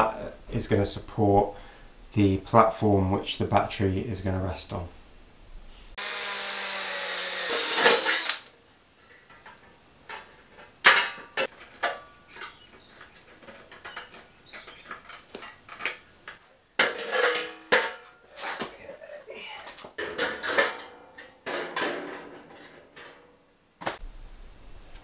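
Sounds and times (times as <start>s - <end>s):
cordless drill driving into steel: 6.0s - 8.5s.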